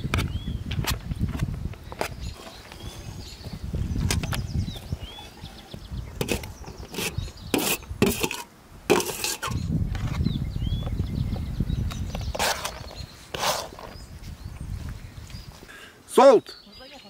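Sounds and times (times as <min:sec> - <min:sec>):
metal skimmer scraping aluminium trays: 0:06.2 - 0:09.6.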